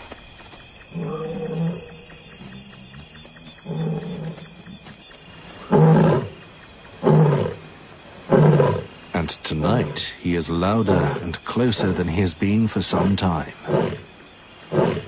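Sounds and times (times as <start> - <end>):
lion roaring: 0.9 - 2.1, 3.6 - 4.5, 5.6 - 6.4, 7.0 - 9.0, 10.8 - 12.0, 13.6 - 14.1, 14.7 - 15.0.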